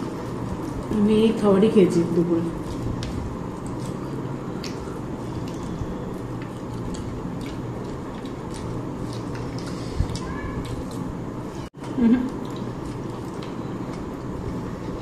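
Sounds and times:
steady background noise: 0:00.0 - 0:15.0
wet squishes of eating by hand: 0:02.6 - 0:11.2, 0:12.2 - 0:15.0.

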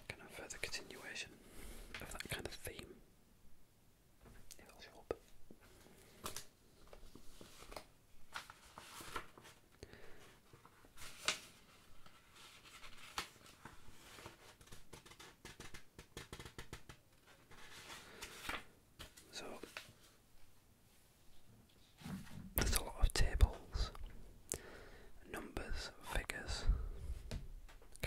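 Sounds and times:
paper rustling: 0:05.7 - 0:20.2.

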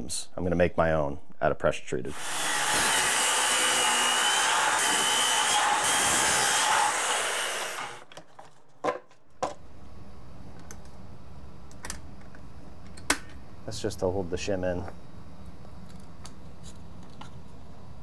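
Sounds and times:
circular saw cutting wood: 0:02.1 - 0:08.1.

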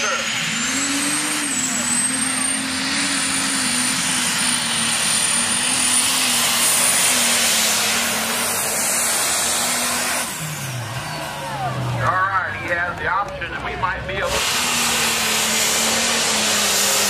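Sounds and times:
diesel tractor engine at full power: 0:00.0 - 0:17.0.

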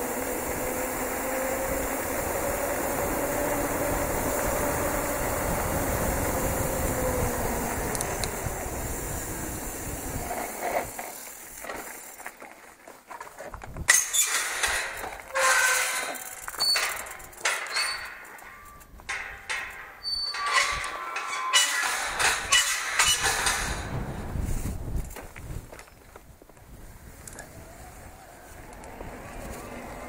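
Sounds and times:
bicycle tyres rolling: 0:00.0 - 0:30.0
wind: 0:00.0 - 0:30.0
gate hinges squeaking: 0:13.9 - 0:24.1
metal gate clanking and rattling: 0:13.9 - 0:24.2.

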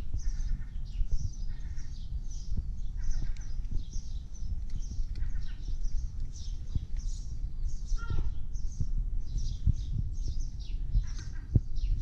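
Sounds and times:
small birds chirping: 0:00.0 - 0:12.0
steady low rumble: 0:00.0 - 0:12.0
short lower bird call: 0:07.9 - 0:08.4.

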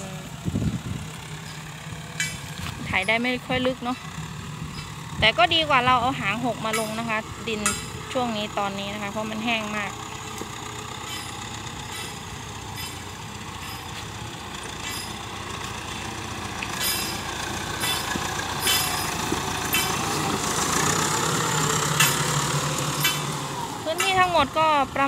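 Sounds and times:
tractor diesel engine under load: 0:00.0 - 0:25.0
sharp metallic clinks: 0:02.2 - 0:03.3, 0:11.0 - 0:14.0, 0:14.8 - 0:15.3, 0:16.8 - 0:20.1, 0:22.0 - 0:24.4.

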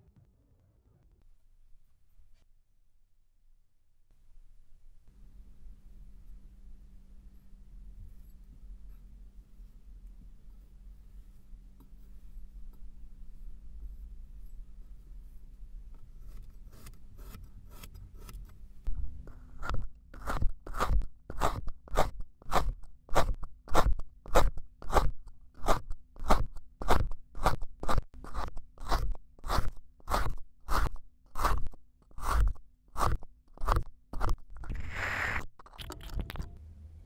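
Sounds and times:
knife scraping: 0:19.6 - 0:35.4
knife slicing kinetic sand: 0:19.6 - 0:35.4.

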